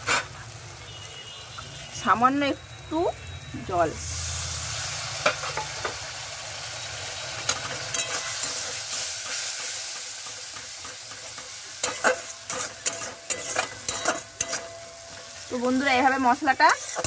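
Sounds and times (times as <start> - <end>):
spices sizzling in hot oil: 0.0 - 17.0
metal spatula scraping pan: 7.4 - 17.0.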